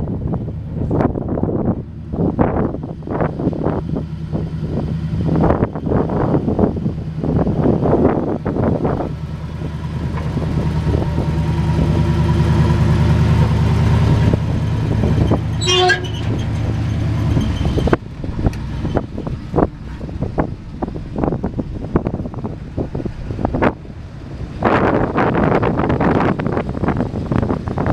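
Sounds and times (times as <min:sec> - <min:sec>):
truck engine idling: 0:00.0 - 0:27.9
wind gusting on microphone: 0:00.0 - 0:27.9
horn toot: 0:15.6 - 0:16.4.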